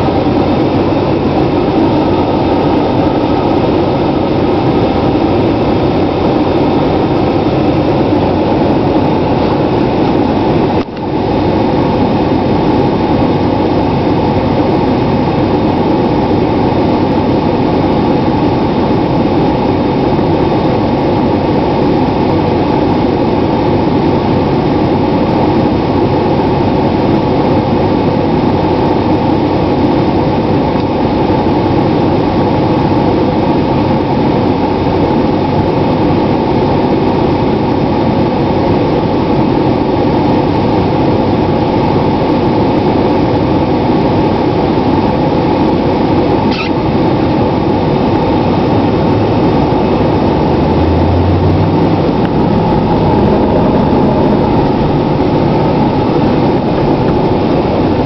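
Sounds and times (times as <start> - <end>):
diesel engine idling: 0.0 - 26.9, 44.9 - 58.0.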